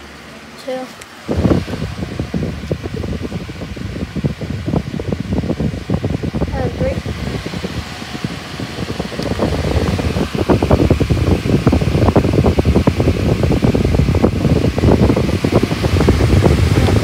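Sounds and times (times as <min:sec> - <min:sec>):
electric fan running: 0:00.0 - 0:17.0.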